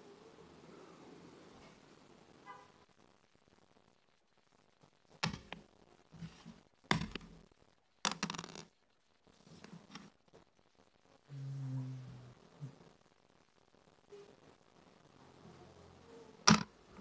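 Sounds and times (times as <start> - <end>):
checkers clacking on wooden board: 5.2 - 5.6, 6.9 - 7.3, 8.1 - 8.7, 16.5 - 16.7.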